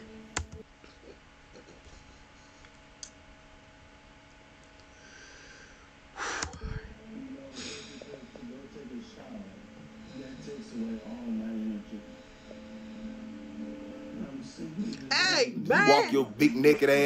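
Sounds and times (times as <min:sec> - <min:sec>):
man laughing quietly: 0:00.8 - 0:02.9.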